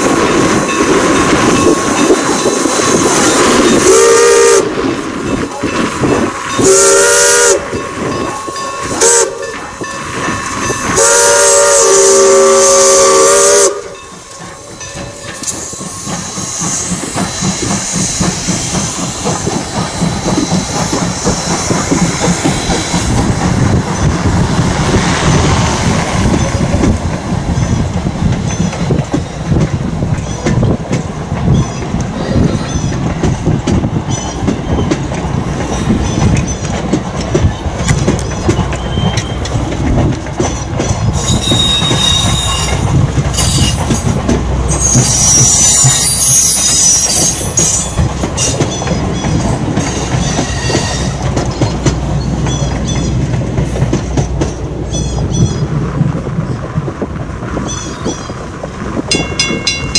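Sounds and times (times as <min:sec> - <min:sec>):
train wheels clicking over rail joints: 0:00.0 - 0:59.9
steam locomotive chime whistle: 0:03.6 - 0:04.8, 0:05.6 - 0:18.2, 0:41.2 - 0:43.9, 0:44.7 - 0:48.6, 0:49.8 - 0:51.2.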